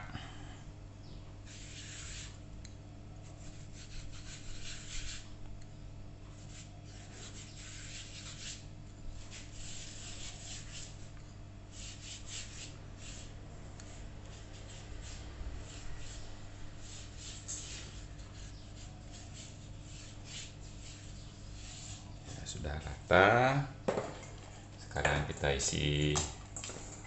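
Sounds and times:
steady low hum: 0.0s - 27.0s
palm rubbing oil on dough: 1.4s - 2.5s, 3.2s - 5.4s, 6.2s - 22.8s.

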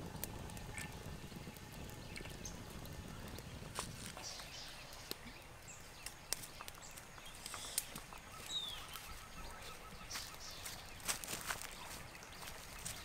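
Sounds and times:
wood fire crackling: 0.0s - 13.0s
bare feet on dry leaves: 6.0s - 13.0s.

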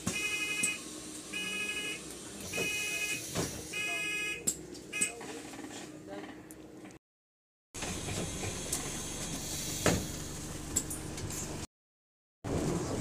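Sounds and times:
bus door warning buzzer: 0.0s - 5.4s.

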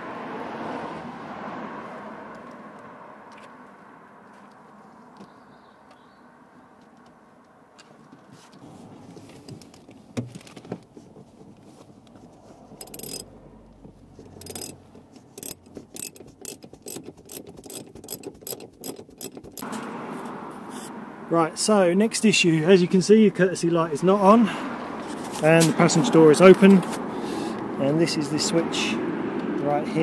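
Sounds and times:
seat rails clicking and clacking: 7.8s - 19.8s.

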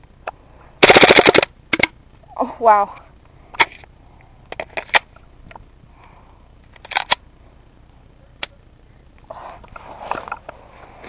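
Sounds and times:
airsoft gun shots: 0.8s - 1.9s
rustle of movement: 2.0s - 11.0s.

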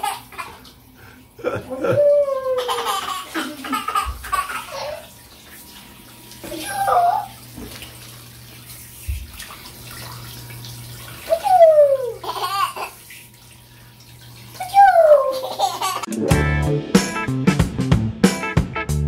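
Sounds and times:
water running: 0.0s - 16.5s
toddler squealing: 6.5s - 7.4s, 14.6s - 15.6s
guitar music: 16.1s - 19.0s.

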